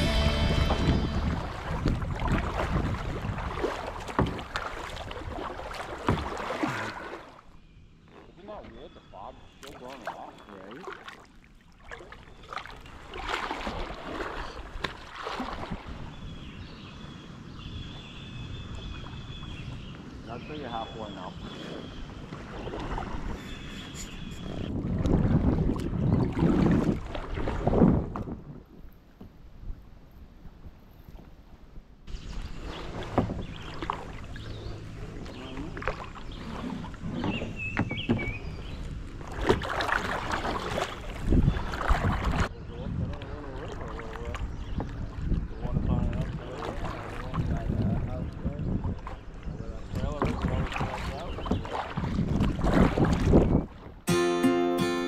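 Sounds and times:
wind rumble on microphone: 0:00.0 - 0:05.5, 0:21.4 - 0:54.1
kayak paddle splashing in water: 0:00.0 - 0:08.7, 0:09.6 - 0:16.4, 0:21.4 - 0:28.9, 0:32.1 - 0:42.5, 0:46.1 - 0:48.1, 0:48.8 - 0:54.0
short high chirps: 0:23.4 - 0:24.6, 0:54.1 - 0:55.0.

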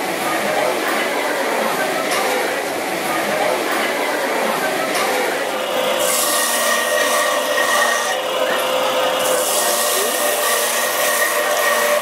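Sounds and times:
juicer motor whine: 0:05.4 - 0:12.0.

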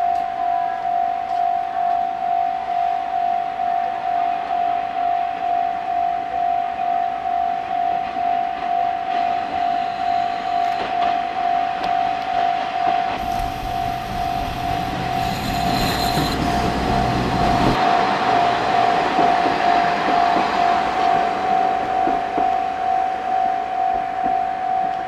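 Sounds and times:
level-crossing bell ringing: 0:05.5 - 0:19.0
wheels on rails: 0:09.0 - 0:22.7
diesel train rumble: 0:13.2 - 0:22.2.

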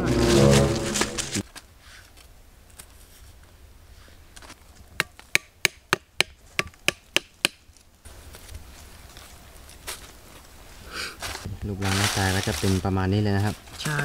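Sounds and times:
wooden stakes being knocked: 0:05.0 - 0:07.7.

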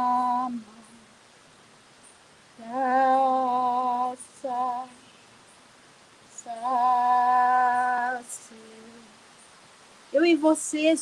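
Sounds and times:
woman singing long notes: 0:00.0 - 0:01.2, 0:02.6 - 0:05.2, 0:06.3 - 0:09.2, 0:10.1 - 0:11.0.

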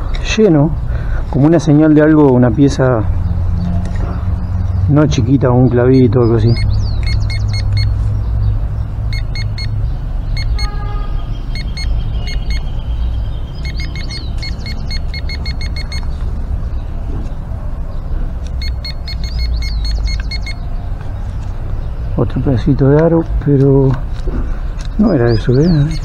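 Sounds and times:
metal detector pinpointer beeping: 0:05.8 - 0:07.9, 0:09.1 - 0:09.8, 0:10.4 - 0:10.8, 0:11.5 - 0:12.7, 0:13.6 - 0:16.2, 0:18.4 - 0:20.6, 0:25.3 - 0:26.0.

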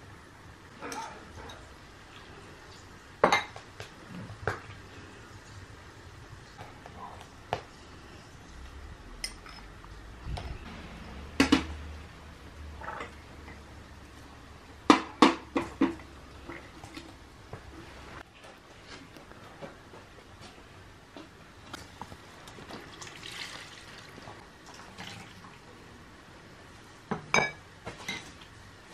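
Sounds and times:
kitchenware clinking: 0:00.8 - 0:01.7, 0:03.2 - 0:03.6, 0:09.2 - 0:10.6, 0:12.8 - 0:13.6, 0:27.1 - 0:28.4
low hum: 0:07.7 - 0:14.8.

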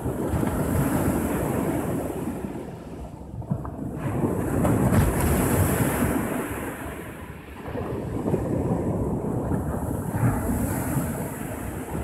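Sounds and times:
sea waves washing on shore: 0:00.0 - 0:12.0
wind rumble on microphone: 0:00.0 - 0:12.0.

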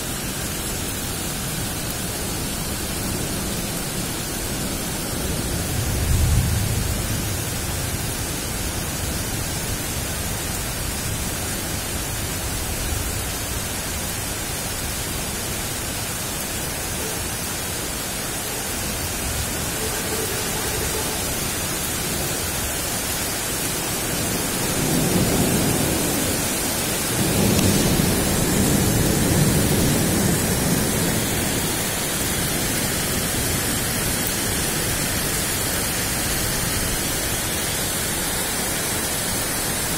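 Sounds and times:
rain hiss: 0:00.0 - 0:39.9
thunder rumbling: 0:05.2 - 0:08.4, 0:24.0 - 0:35.2.

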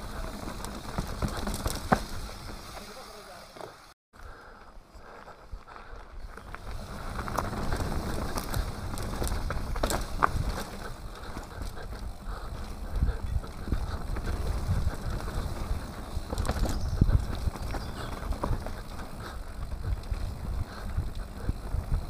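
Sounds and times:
bike rattling and knocking: 0:00.0 - 0:03.0, 0:06.4 - 0:22.0
bike tyres rumbling on dirt: 0:00.0 - 0:22.0
wind on microphone: 0:06.2 - 0:22.0.

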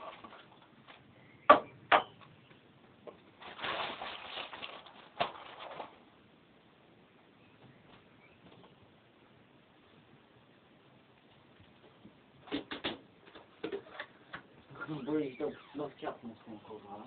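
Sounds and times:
rustling and clattering: 0:00.0 - 0:01.1, 0:02.2 - 0:06.1, 0:11.2 - 0:14.6
sharp knocks: 0:01.5 - 0:02.2.

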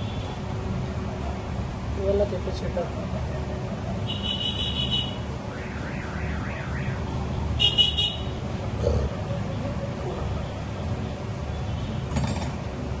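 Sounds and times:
high electronic beeps: 0:05.5 - 0:07.2.

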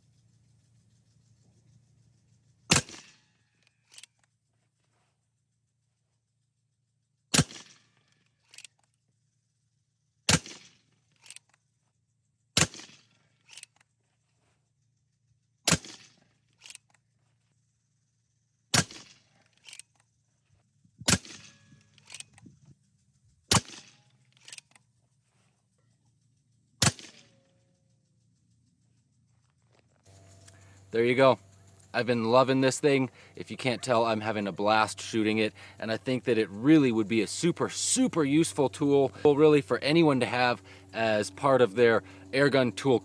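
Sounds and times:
air pistol shots cracking: 0:02.7 - 0:03.2, 0:07.3 - 0:07.9, 0:10.3 - 0:11.4, 0:12.6 - 0:13.7, 0:15.7 - 0:16.9, 0:18.7 - 0:19.9, 0:21.0 - 0:22.4, 0:23.5 - 0:24.7, 0:26.8 - 0:27.3.

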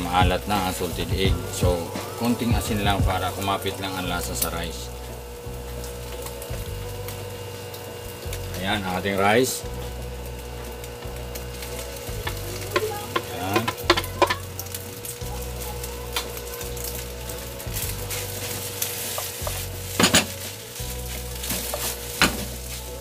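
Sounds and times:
rice sizzling in a frying pan: 0:00.0 - 0:23.0
spatula scraping and knocking pan: 0:18.1 - 0:22.8.

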